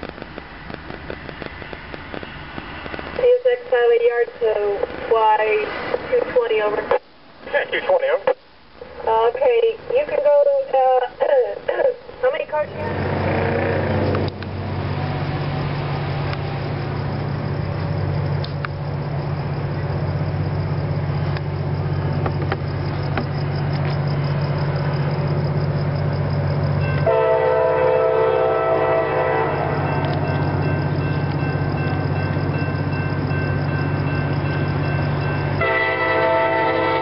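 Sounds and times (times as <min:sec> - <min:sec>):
diesel locomotive engine drone: 0:00.0 - 0:37.0
locomotive air horn chord: 0:27.0 - 0:30.1, 0:35.6 - 0:37.0.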